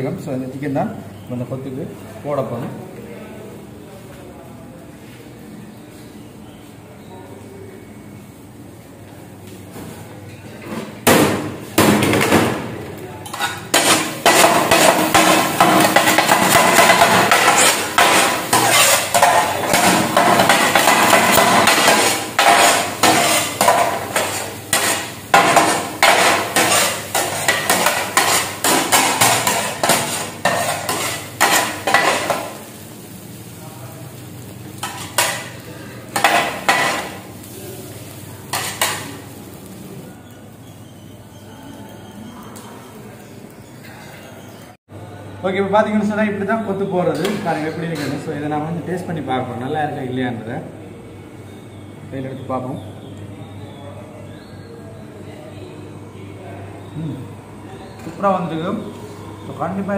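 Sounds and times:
metal blades chopping on griddle: 0:13.2 - 0:32.6, 0:34.8 - 0:35.5, 0:36.1 - 0:37.2, 0:38.5 - 0:39.2.

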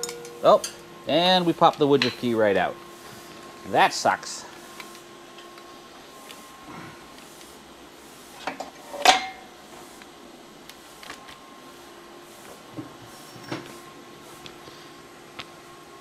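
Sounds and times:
metal tools clinking: 0:00.0 - 0:00.8
steady hum: 0:00.0 - 0:16.0.

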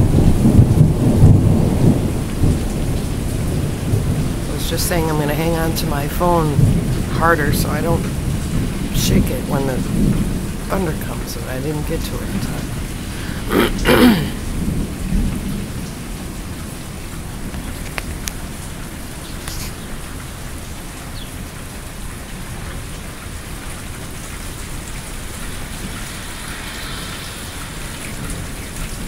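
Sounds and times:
low thunder rumble: 0:00.0 - 0:20.6
steady rain falling: 0:00.0 - 0:29.0.

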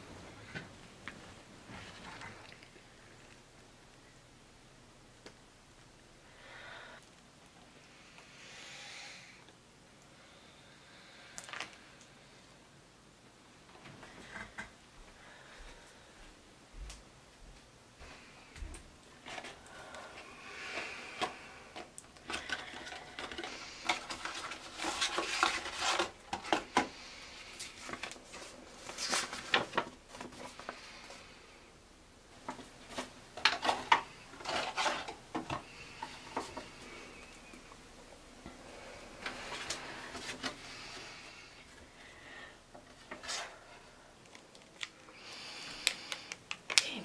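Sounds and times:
paper rustling and crinkling: 0:20.8 - 0:30.9, 0:32.4 - 0:36.8, 0:39.2 - 0:40.9.

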